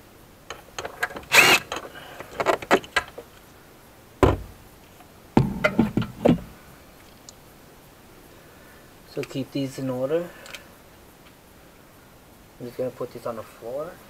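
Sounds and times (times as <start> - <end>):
loose bolt clicking: 0.5 - 3.2
drill knocking when set down: 0.8 - 3.2, 4.2 - 4.5, 5.4 - 6.5
cordless drill running: 1.3 - 1.7.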